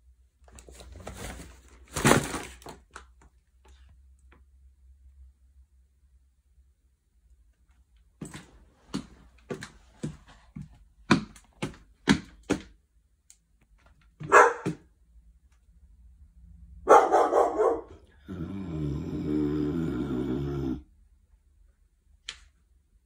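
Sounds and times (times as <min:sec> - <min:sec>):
dog barking: 0:14.2 - 0:14.9, 0:16.8 - 0:18.1.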